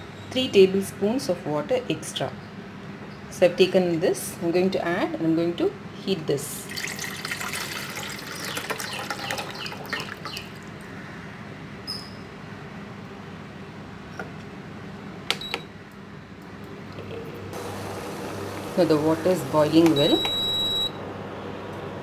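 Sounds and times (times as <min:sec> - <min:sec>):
water pouring into saucepan: 0:06.7 - 0:10.6.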